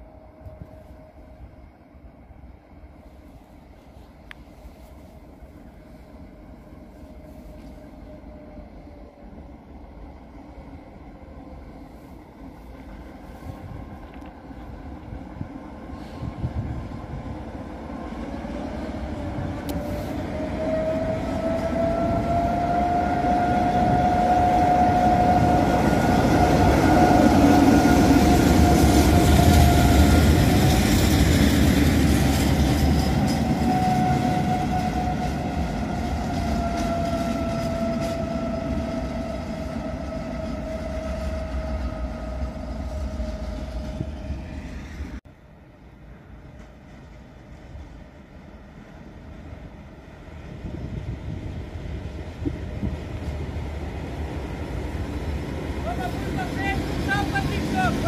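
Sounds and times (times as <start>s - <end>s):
train passing rumble: 0.0s - 58.0s.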